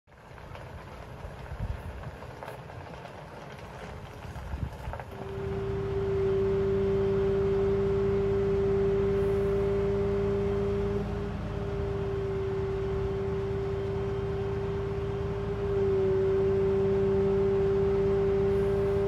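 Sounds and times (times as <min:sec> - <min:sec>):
truck engine running: 0:00.1 - 0:19.0
steady tonal hum: 0:05.2 - 0:19.0.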